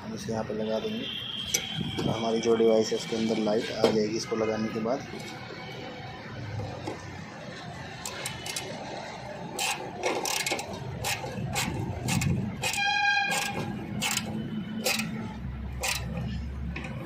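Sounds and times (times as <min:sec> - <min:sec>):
vehicle horn: 0:01.0 - 0:03.0, 0:12.6 - 0:15.4.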